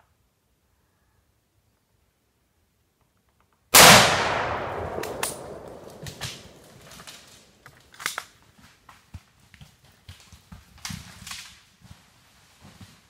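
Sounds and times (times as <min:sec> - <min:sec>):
loud gunshot echoing: 0:03.8 - 0:06.8
faint snaps and rustles: 0:04.9 - 0:13.0.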